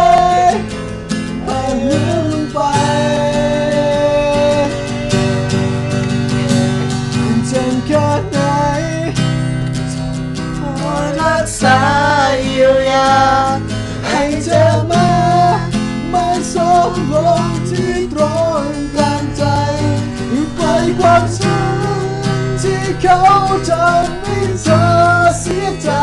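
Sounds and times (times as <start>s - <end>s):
person singing wordless melody: 0.0s - 9.3s, 10.6s - 26.0s
acoustic guitar strumming: 0.0s - 26.0s.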